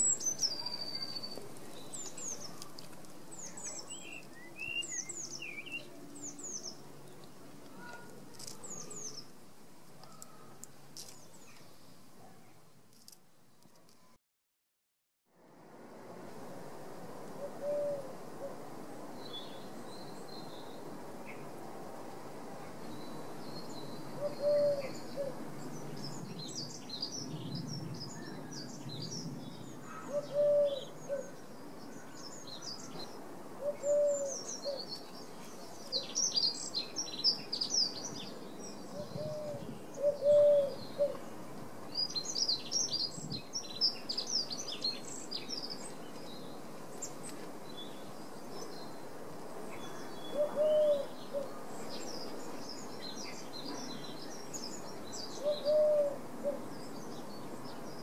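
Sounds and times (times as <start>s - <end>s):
songbirds chirping: 0.0s - 14.1s, 16.8s - 58.0s
bird cooing: 17.4s - 18.6s, 24.2s - 25.4s, 29.8s - 31.3s, 33.6s - 34.9s, 38.9s - 41.2s, 50.3s - 51.6s, 55.4s - 56.7s.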